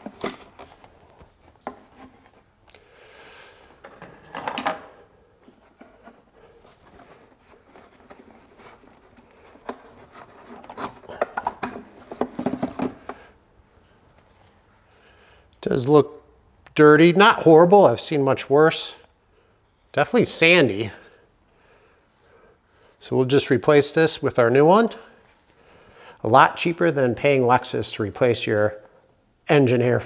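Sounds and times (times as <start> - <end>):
plastic scraping: 0.0 - 2.5, 3.8 - 13.3
plastic clatter: 3.8 - 6.2, 6.8 - 13.3.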